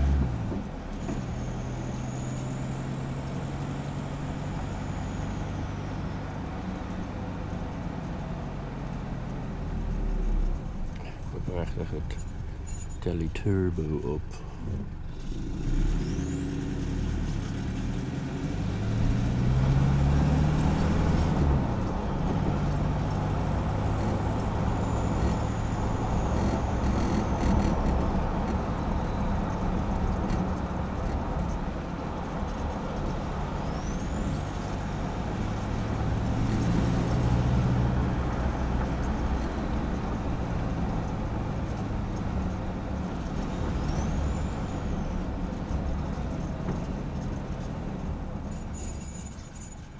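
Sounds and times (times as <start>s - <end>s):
turbo whistle: 48.5s - 49.9s.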